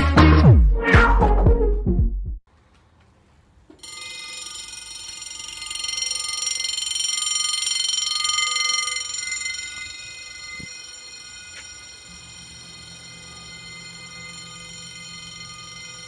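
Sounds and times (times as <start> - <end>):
level crossing bell ringing: 3.8 - 16.0.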